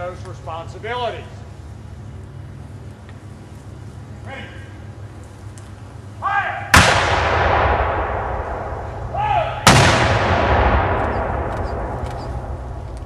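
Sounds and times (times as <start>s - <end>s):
cannon booms with echo: 6.7s - 13.0s.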